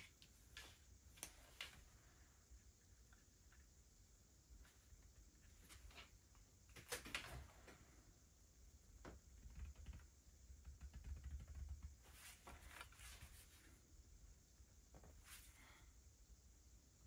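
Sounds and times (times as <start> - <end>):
low steady hum: 0.0 - 17.0
pencil scratching and tapping: 9.4 - 12.2.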